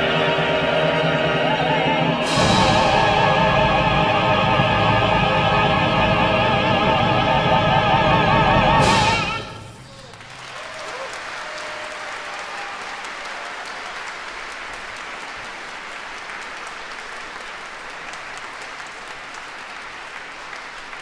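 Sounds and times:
audience applauding: 8.9 - 21.0.

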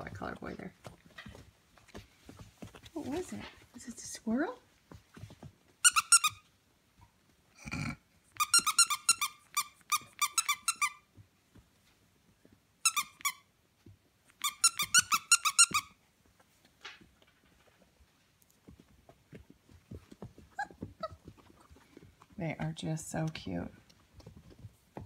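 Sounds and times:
dog toy squeaking: 5.8 - 6.4, 8.4 - 11.0, 12.8 - 13.5, 14.4 - 16.0.

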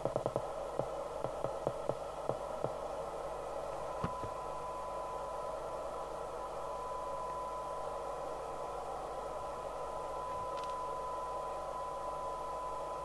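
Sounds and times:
radio receiver hiss: 10.2 - 11.4.

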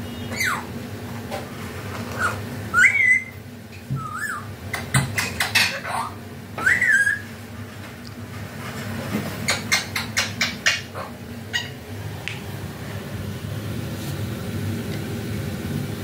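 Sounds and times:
parakeet whistled calls: 0.0 - 0.7, 2.2 - 3.4, 4.0 - 4.5, 5.6 - 7.3.

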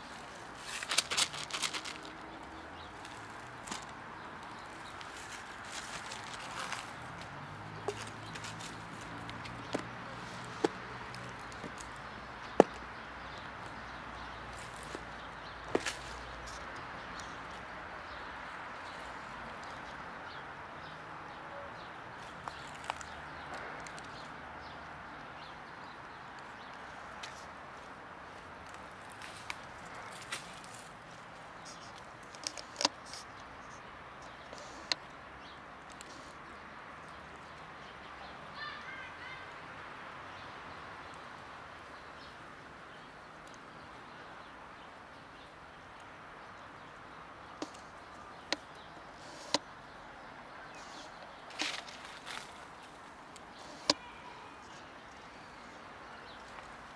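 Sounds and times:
footsteps on dirt and dry leaves: 0.0 - 11.9, 14.5 - 16.5, 51.5 - 53.1
outdoor background hiss: 0.0 - 56.9.

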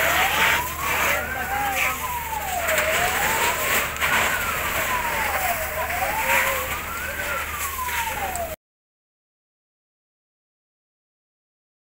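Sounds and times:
emergency siren wailing: 0.0 - 8.6.

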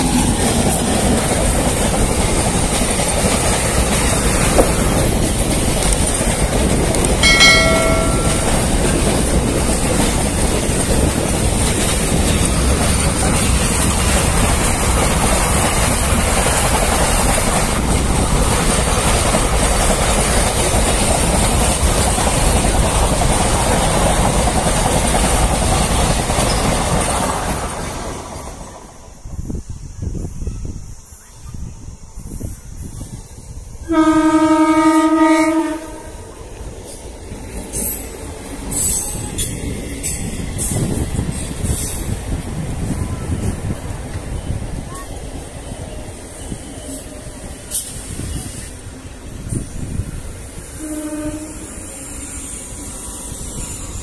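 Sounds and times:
wheels clickety-clack: 0.0 - 28.8, 36.5 - 48.7
train rumbling on rails: 0.0 - 54.0
brief pitched tone: 7.2 - 8.6.

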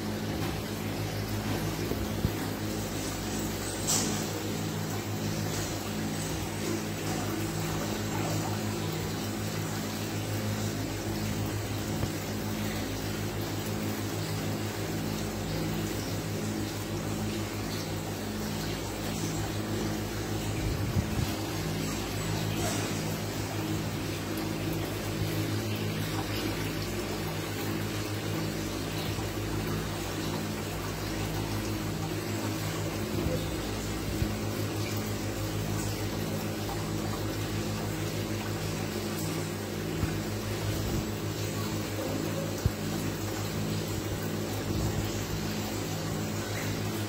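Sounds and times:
bubbles streaming: 0.0 - 47.0.

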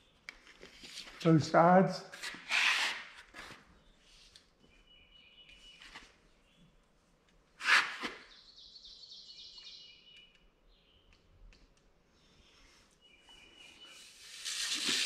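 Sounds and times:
tape measure and marker handling: 2.1 - 3.6, 7.6 - 8.3, 13.9 - 15.0
faint high chirp-like tones: 4.6 - 7.0, 8.3 - 11.4, 12.1 - 14.3
loud scratchy burst: 14.2 - 15.0.

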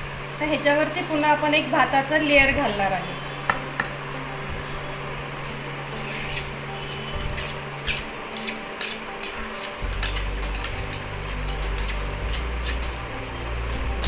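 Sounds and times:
steady low hum: 0.0 - 14.0
rice scraping off a ladle: 5.4 - 13.0.

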